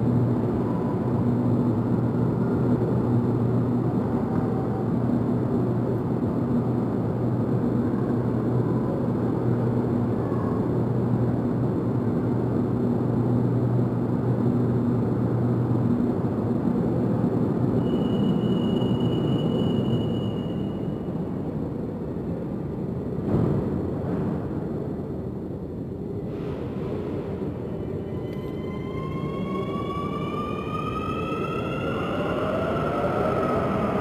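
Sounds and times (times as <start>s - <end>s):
rumbling hum of train equipment: 0.0s - 34.0s
steady high beep: 17.8s - 21.0s.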